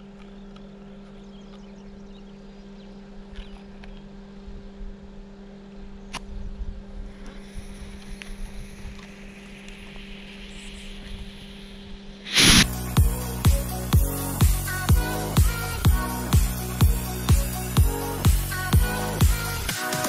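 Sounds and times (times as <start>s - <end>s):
steady low hum: 0.0s - 19.8s
wind rumble on microphone: 4.4s - 5.2s, 5.8s - 12.7s
firecracker fuse hissing: 12.2s - 13.3s.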